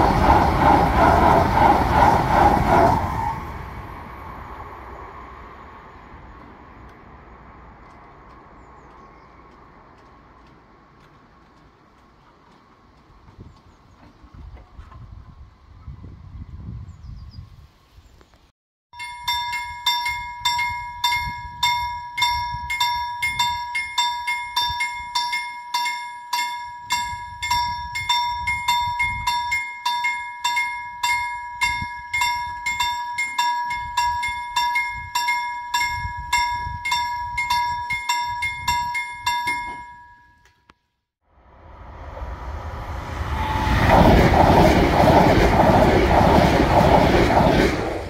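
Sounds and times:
level crossing warning bell: 19.0 - 40.7.

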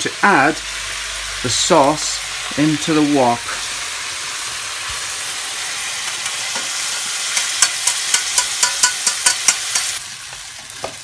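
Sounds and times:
food sizzling in a wok: 0.0 - 11.0
metal utensils tapping a wok: 6.1 - 10.0.

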